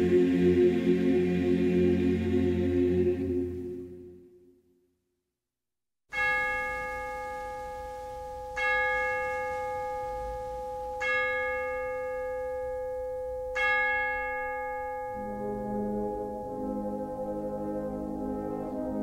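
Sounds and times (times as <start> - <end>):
bell tolling slowly: 6.2 - 19.0.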